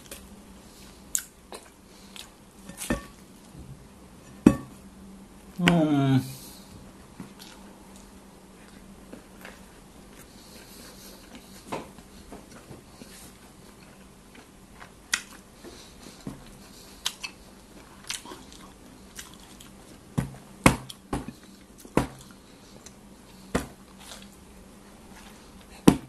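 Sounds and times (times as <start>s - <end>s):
person chewing with lip smacks: 12.5s - 19.8s.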